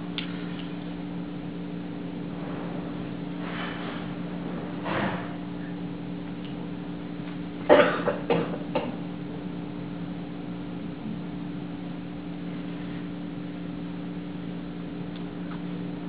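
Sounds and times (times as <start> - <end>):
low room hum: 0.0 - 16.0
person coughing: 7.7 - 9.0.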